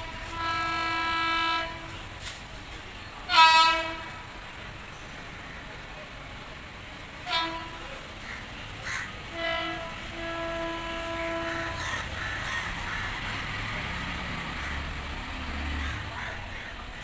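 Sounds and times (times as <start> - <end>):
locomotive horn: 0.0 - 2.3, 3.2 - 4.3, 7.2 - 8.2, 9.2 - 12.2
train rumbling: 0.0 - 17.0.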